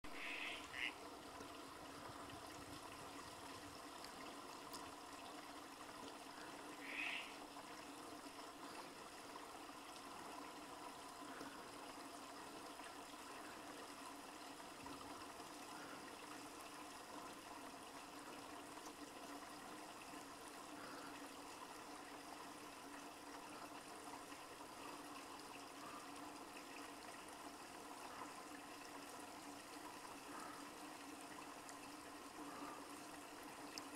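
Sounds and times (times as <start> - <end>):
stream trickling: 0.0 - 33.9
tree frog croaking: 0.1 - 1.0, 6.8 - 7.4.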